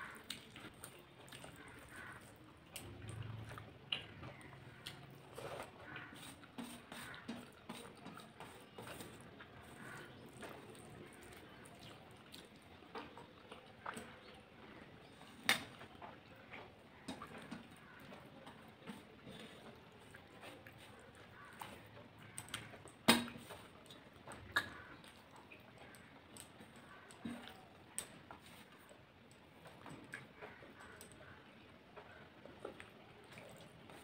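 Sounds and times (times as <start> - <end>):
person chewing: 0.0 - 12.7
rice mixed by hand on steel plate: 0.0 - 13.2, 15.0 - 34.0
sharp clicks and smacks: 15.4 - 15.9.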